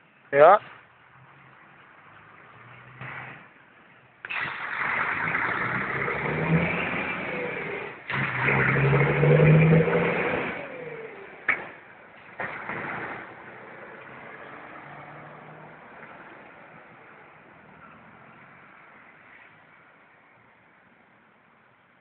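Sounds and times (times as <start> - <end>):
truck diesel engine passing: 4.2 - 11.5.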